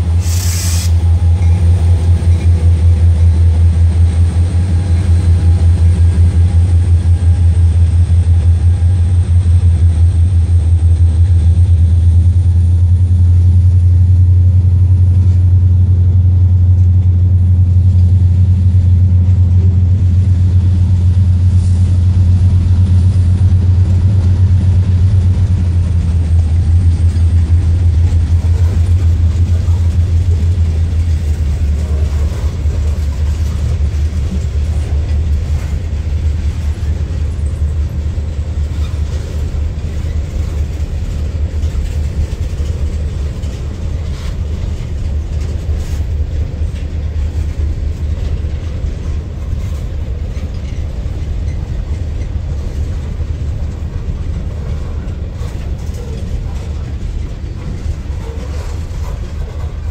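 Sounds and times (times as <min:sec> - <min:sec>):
freight train rolling by: 0:00.0 - 0:59.9.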